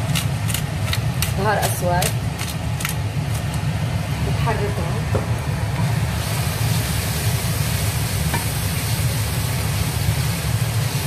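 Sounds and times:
steady low hum: 0.0 - 11.0
meat sizzling in a pot: 5.4 - 11.0.

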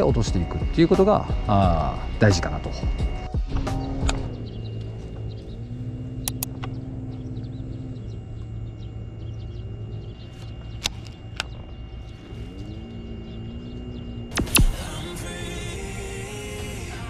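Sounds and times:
soft background music: 0.0 - 17.0
steady low hum: 0.0 - 17.0
sharp clicks: 3.6 - 5.0, 6.2 - 6.9, 10.4 - 11.8, 14.3 - 15.1.

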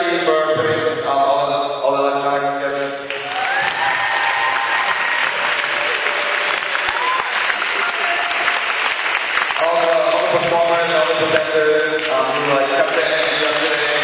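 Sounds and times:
crowd applauding and cheering: 3.0 - 14.0
high rising whoops: 3.2 - 7.4.

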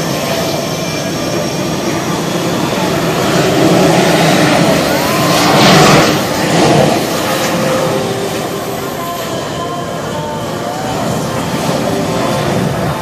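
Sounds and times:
jet engines running: 0.0 - 13.0.

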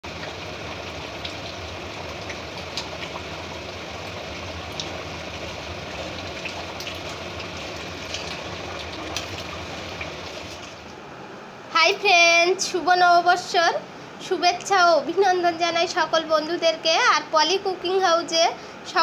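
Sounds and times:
curry bubbling in a pan: 0.0 - 10.9.

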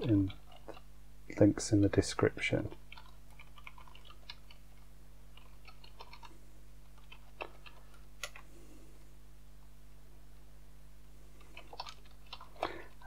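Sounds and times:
keyboard typing: 2.8 - 8.5, 11.4 - 13.0.

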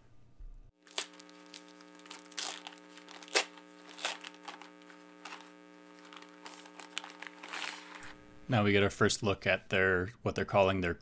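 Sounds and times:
steady electrical hum: 0.0 - 11.0
plastic sleeve crinkling: 0.8 - 8.2.

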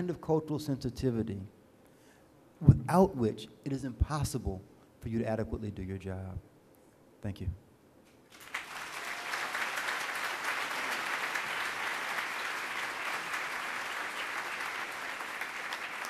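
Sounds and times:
large audience applauding: 8.3 - 16.0.

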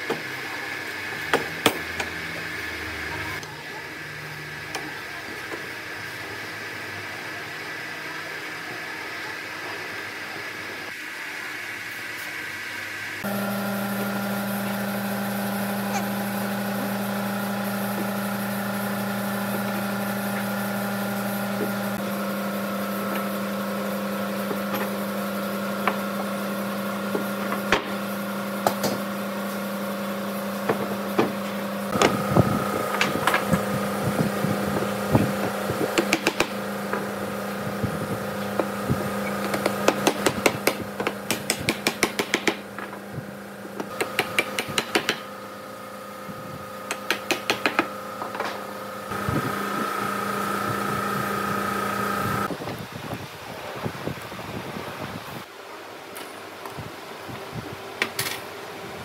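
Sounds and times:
steady machine hum: 10.2 - 52.6.

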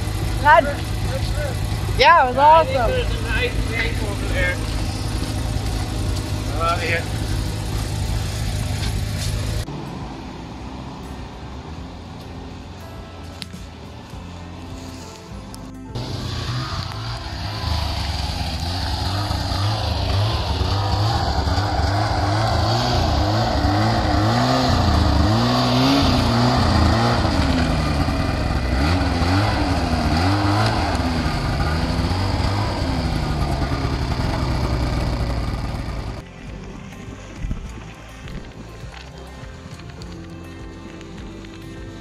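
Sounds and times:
snowmobile engine revving: 0.0 - 9.6, 16.0 - 36.2.

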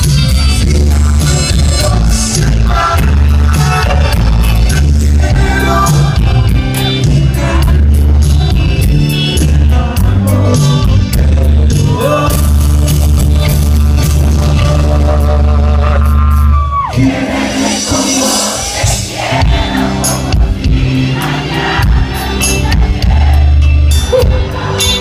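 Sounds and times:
drums: 0.0 - 25.0
electric bass: 0.0 - 25.0
electric guitar: 0.0 - 25.0
keyboard: 0.0 - 25.0.

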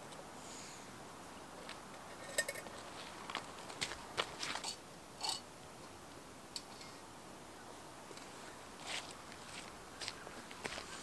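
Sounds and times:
footsteps crunching on stones: 2.6 - 4.8, 8.8 - 11.0.

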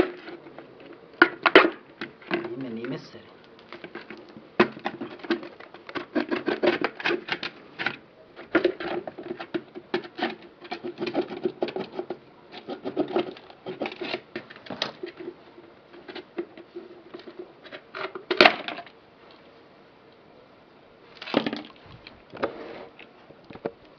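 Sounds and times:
gourd cracking open: 21.2 - 22.2.

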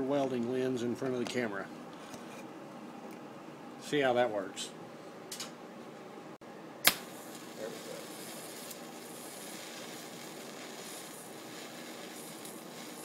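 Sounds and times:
welding arc hissing: 6.8 - 13.0
welding arc striking crack: 6.8 - 13.0.

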